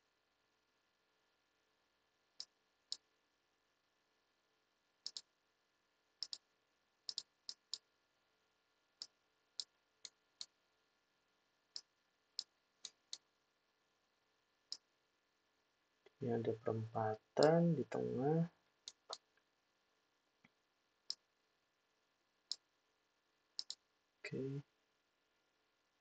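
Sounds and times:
computer mouse clicking: 0:05.0 - 0:05.3, 0:06.2 - 0:06.5, 0:07.1 - 0:07.8, 0:11.7 - 0:13.3, 0:18.8 - 0:19.4, 0:23.6 - 0:23.8.

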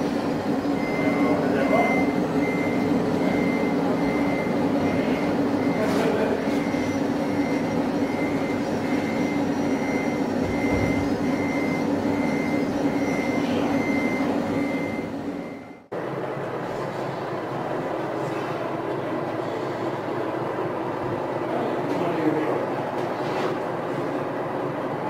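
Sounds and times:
simulated diesel engine hum: 0:00.0 - 0:25.0
warning beeps: 0:00.8 - 0:15.9.

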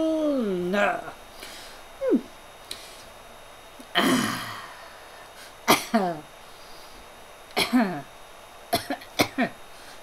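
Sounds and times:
person coughing harshly: 0:04.0 - 0:04.6, 0:05.7 - 0:06.2, 0:07.6 - 0:08.0, 0:08.7 - 0:09.6.

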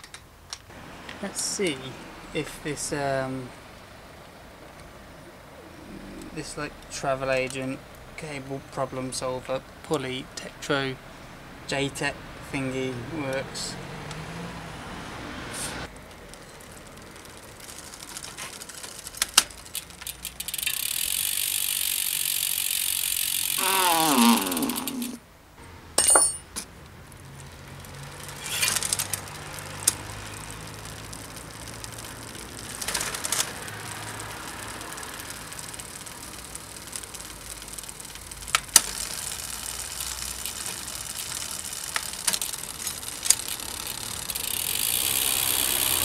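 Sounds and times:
bicycle drivetrain spinning: 0:15.8 - 0:25.2, 0:27.0 - 0:46.0.

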